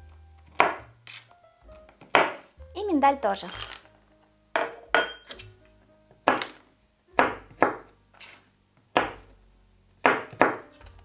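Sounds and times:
knife chopping on cutting board: 0:00.5 - 0:01.2, 0:02.0 - 0:02.5, 0:06.2 - 0:06.6, 0:07.2 - 0:09.3, 0:10.0 - 0:10.8.

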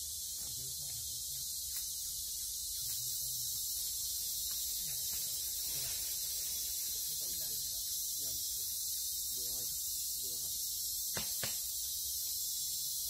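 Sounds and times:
drone of forest insects: 0:00.0 - 0:13.0.

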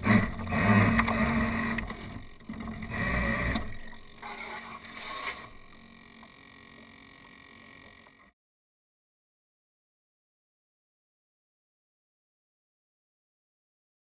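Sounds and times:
electric motor hum: 0:00.0 - 0:08.3.

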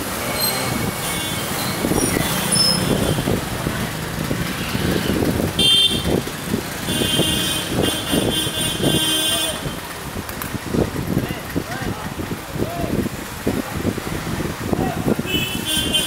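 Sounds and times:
traffic on wet road: 0:00.0 - 0:16.0
vehicle horn: 0:05.6 - 0:06.2, 0:06.8 - 0:09.8, 0:15.3 - 0:16.0.

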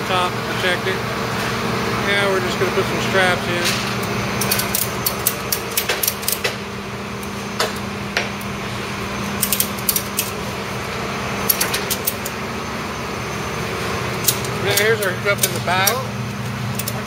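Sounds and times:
steady low hum: 0:00.0 - 0:17.0
ratchet strap clicking: 0:04.4 - 0:06.6, 0:09.4 - 0:10.4, 0:16.7 - 0:17.0.

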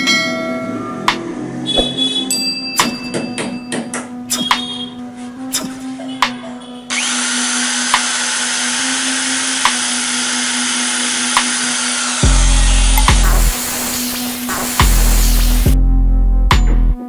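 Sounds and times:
electric drill boring into wall: 0:06.9 - 0:15.7.

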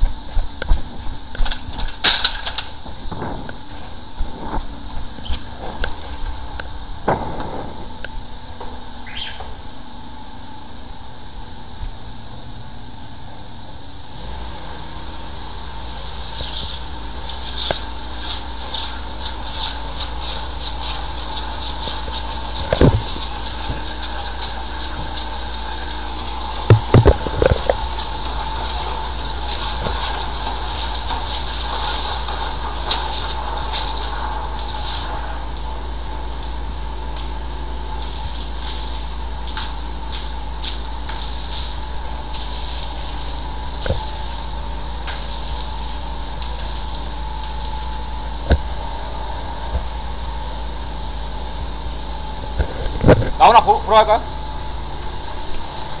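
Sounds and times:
low hum: 0:00.0 - 0:32.7
steady high whine: 0:00.0 - 0:56.0
water hissing from jetter nozzle: 0:00.0 - 0:56.0
sharp knocks: 0:07.0 - 0:08.8, 0:26.7 - 0:27.8.

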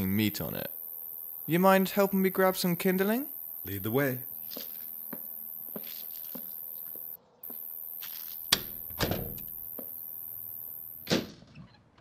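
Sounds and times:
dull thump: 0:08.5 - 0:09.9
door swinging closed: 0:08.6 - 0:09.4.

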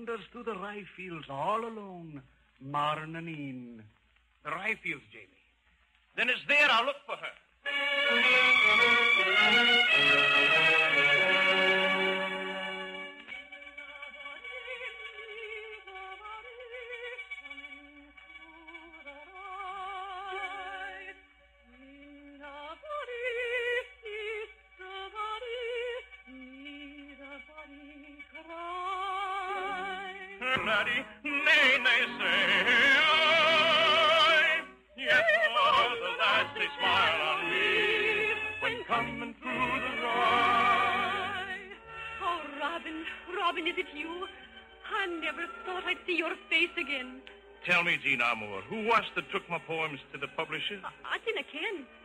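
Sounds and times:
orchestral music with vibrato melody: 0:07.6 - 0:14.8, 0:28.8 - 0:52.0.

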